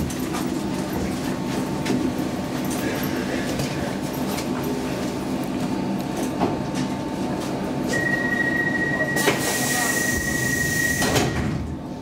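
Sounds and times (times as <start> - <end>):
metro train rumbling to a stop: 0.0 - 12.0
steady high-pitched beep: 7.9 - 11.0.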